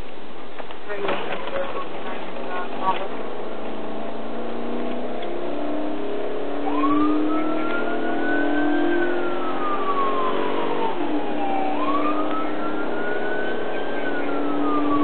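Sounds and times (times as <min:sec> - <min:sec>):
car engine and tyres humming: 0:00.0 - 0:15.0
police siren wailing: 0:01.5 - 0:15.0.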